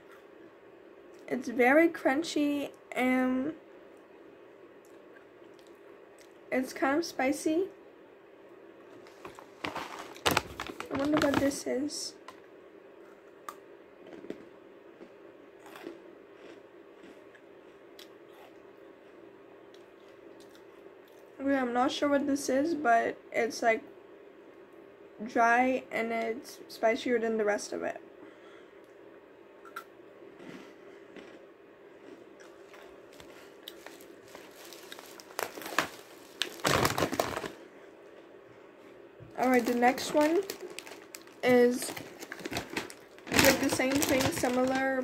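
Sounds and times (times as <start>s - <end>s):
low room hum: 0.0s - 45.0s
plastic snack packet crinkling: 9.1s - 11.8s, 32.7s - 37.6s, 39.4s - 45.0s
chewing crunchy snack: 13.1s - 21.3s, 29.6s - 38.3s.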